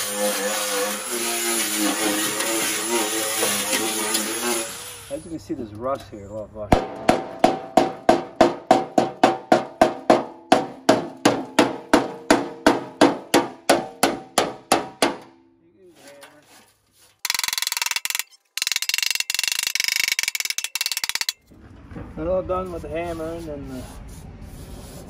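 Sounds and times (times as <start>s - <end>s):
hammer striking steel: 6.8s - 15.5s
metal scraping rusty steel: 15.2s - 21.5s.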